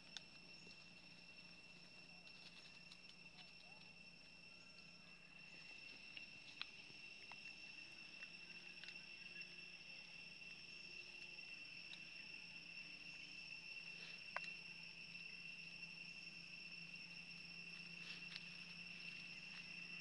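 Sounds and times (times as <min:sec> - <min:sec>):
insect chorus trilling: 0:00.0 - 0:20.0
faint ticks: 0:02.2 - 0:03.9, 0:14.1 - 0:14.6.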